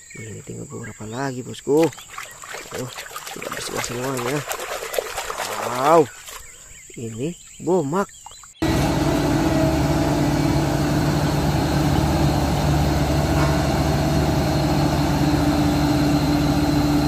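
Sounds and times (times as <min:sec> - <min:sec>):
road roller diesel engine running: 0:08.6 - 0:17.0.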